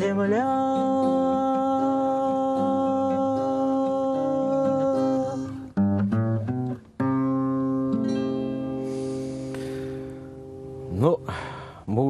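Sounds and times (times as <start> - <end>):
man singing: 0.0 - 5.7
acoustic guitar: 0.0 - 12.0.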